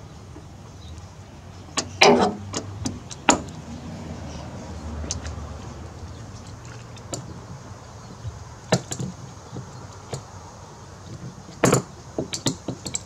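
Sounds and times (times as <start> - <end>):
tools clicking and knocking: 1.8 - 3.6, 8.7 - 10.3, 11.0 - 13.0.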